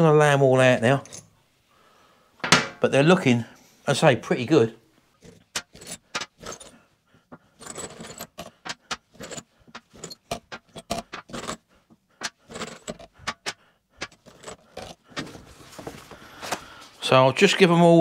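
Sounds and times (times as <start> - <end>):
light scraping: 5.2 - 6.8, 7.4 - 16.6
steel bolts clinking on metal: 5.2 - 6.8, 7.6 - 11.6, 12.2 - 15.3.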